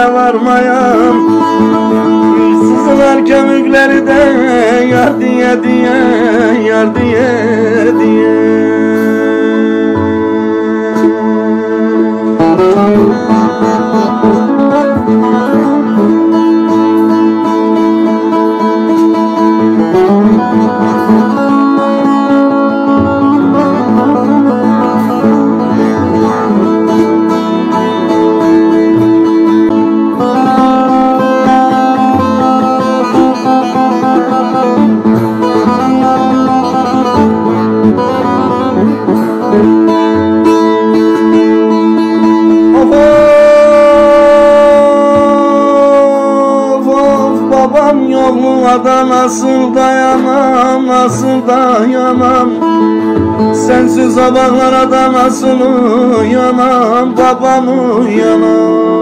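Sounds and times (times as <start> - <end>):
plucked lute melody: 0.0 - 59.0
drone note ringing: 42.7 - 46.7.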